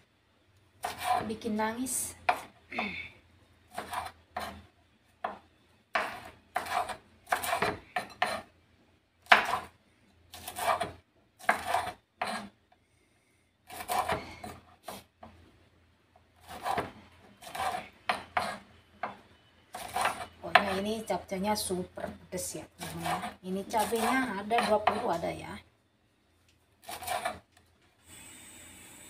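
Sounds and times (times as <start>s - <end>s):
knife slicing chilies on wooden board: 0.8s - 1.3s, 3.7s - 4.6s, 6.0s - 8.5s, 9.3s - 9.7s, 10.4s - 12.5s, 13.7s - 15.0s, 16.4s - 19.2s, 19.8s - 20.8s, 22.8s - 25.2s, 26.8s - 27.4s.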